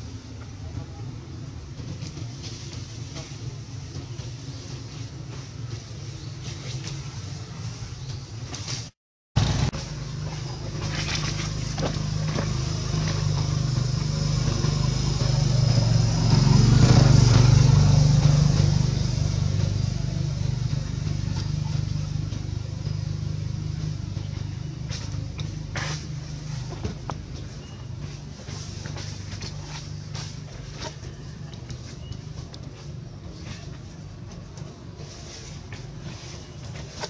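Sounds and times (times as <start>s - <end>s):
vehicle engine passing slowly: 9.4s - 37.0s.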